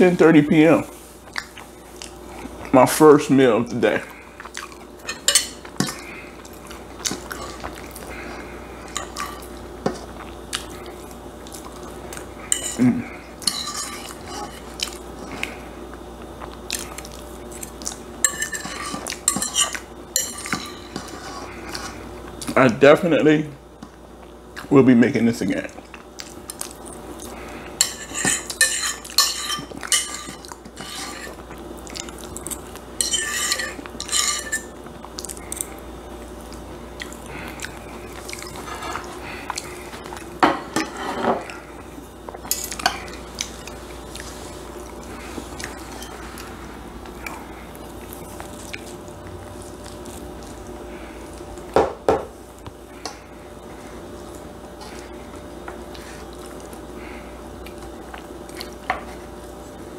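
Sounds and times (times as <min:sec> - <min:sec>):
metal utensils clinking on pan: 0:27.8 - 0:31.2, 0:33.0 - 0:34.7.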